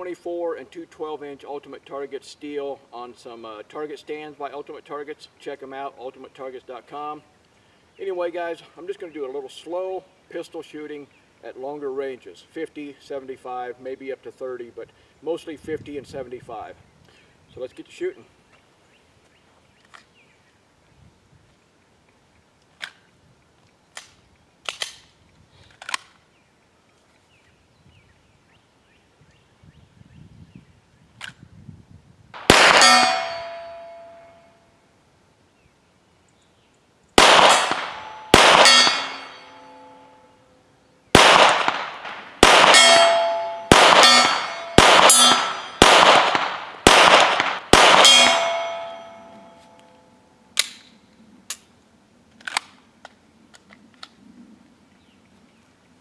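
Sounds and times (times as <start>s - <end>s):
pistol shots: 32.4s - 34.2s, 37.2s - 39.8s, 41.1s - 49.3s
steel plate ringing: 32.4s - 34.6s, 37.2s - 40.4s, 42.4s - 46.1s, 47.8s - 50.0s.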